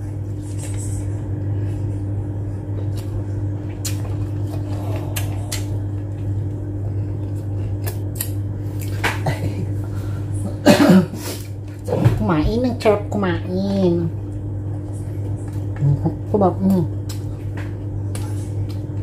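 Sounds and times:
low electrical hum: 0.0 - 19.0
person chewing and licking fingers: 2.8 - 6.3, 7.0 - 9.1.

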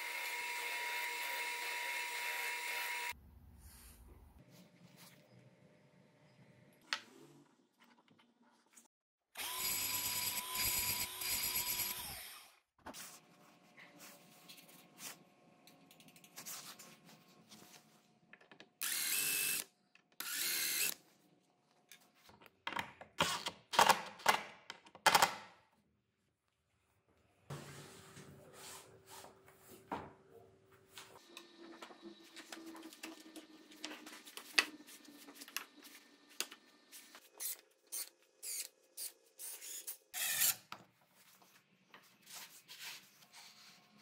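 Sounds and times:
small power tool running: 0.0 - 3.2, 9.4 - 12.5, 18.8 - 19.6, 20.2 - 21.0
drill-driver driving screws: 18.8 - 21.0, 37.4 - 40.7.

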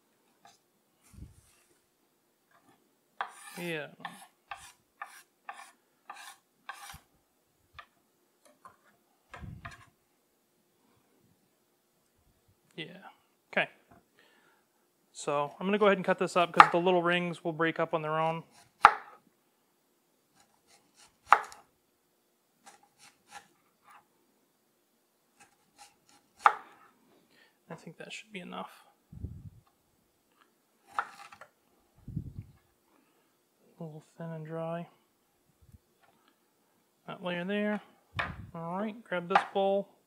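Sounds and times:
knife scraping cutting board: 3.2 - 7.1, 9.6 - 9.9, 22.6 - 24.0, 25.4 - 26.6, 30.8 - 31.4.

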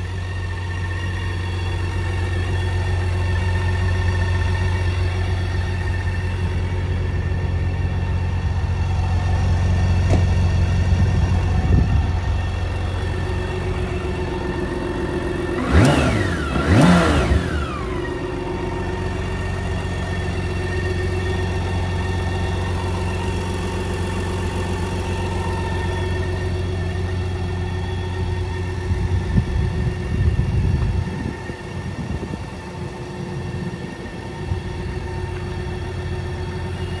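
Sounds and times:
motorcycle engine idling: 0.0 - 37.0
engine revving: 9.2 - 32.9.

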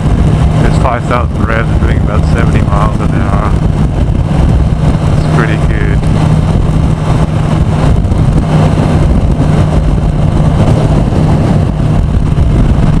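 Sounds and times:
motorcycle engine cruising: 0.0 - 13.0
wind rush on microphone: 0.0 - 13.0.

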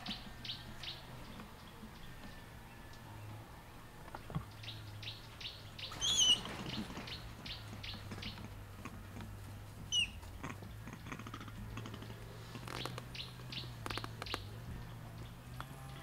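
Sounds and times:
low steady hum: 0.0 - 16.0
sharp clicks: 10.9 - 14.6.

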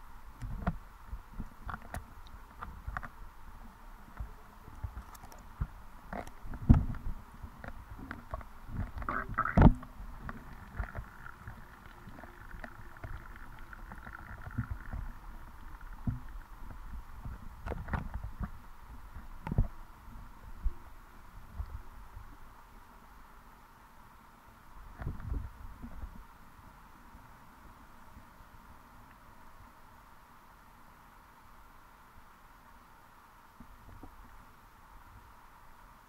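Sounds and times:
low rumbling underwater noise: 0.5 - 22.6
underwater knocks and thumps: 4.2 - 18.6.

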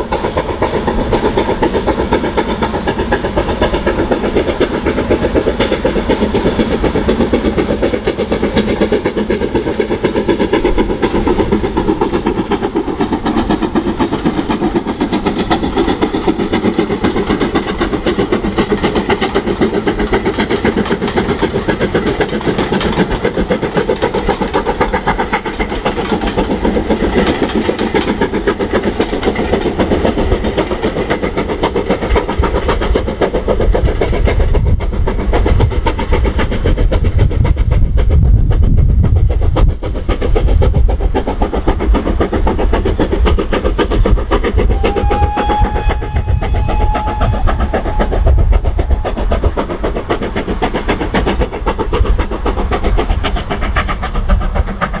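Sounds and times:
steam locomotive exhaust beat: 0.0 - 55.0.

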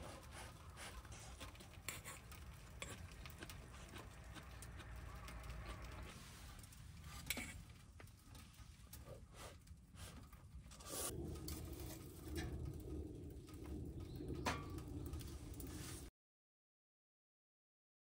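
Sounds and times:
steady low sound: 11.0 - 16.1.

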